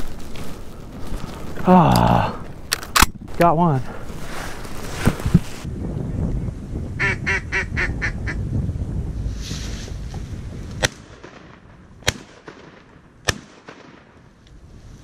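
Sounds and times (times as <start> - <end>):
wind noise: 0.0 - 12.1, 14.2 - 15.0
shotgun shots: 10.8 - 14.1.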